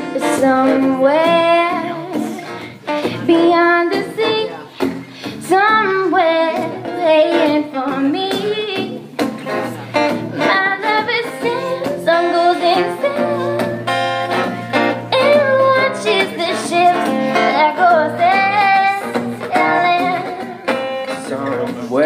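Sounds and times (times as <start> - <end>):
acoustic guitar: 0.0 - 22.0
high voice singing: 10.3 - 13.8, 15.1 - 21.2.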